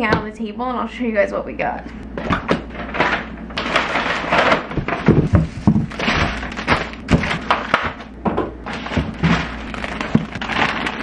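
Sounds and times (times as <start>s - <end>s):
items thunking on wooden table: 2.2s - 10.6s
plastic packaging crinkling: 2.6s - 11.0s.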